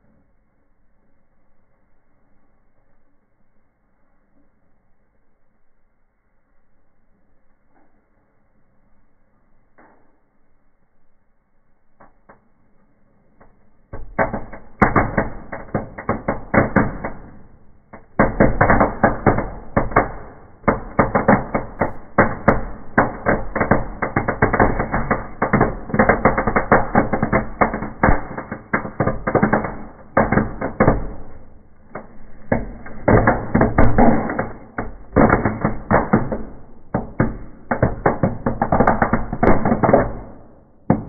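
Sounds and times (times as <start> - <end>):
fireworks bangs and crackles: 13.9 - 41.0.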